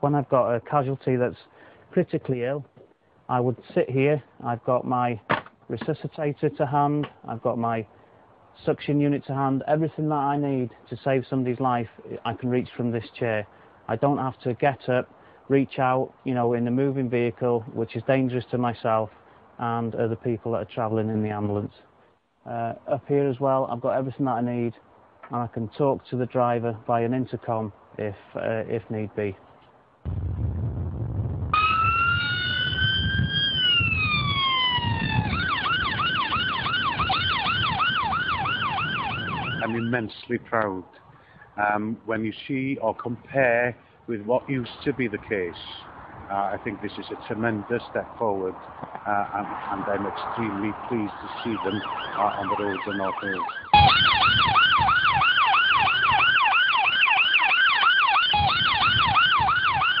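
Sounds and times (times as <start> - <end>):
engine and road rumble: 0.0 - 60.0
ambulance siren: 31.6 - 40.0, 51.2 - 60.0.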